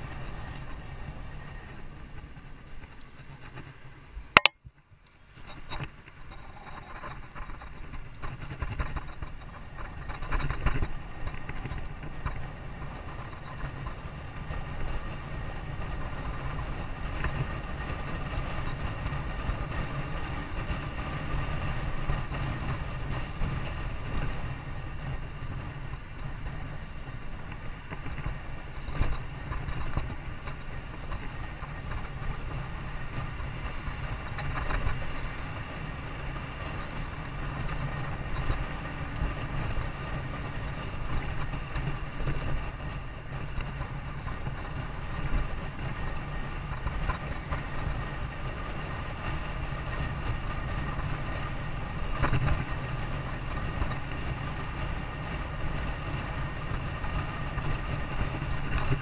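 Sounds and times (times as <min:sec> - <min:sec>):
vehicle low rumble: 0:00.0 - 0:59.0.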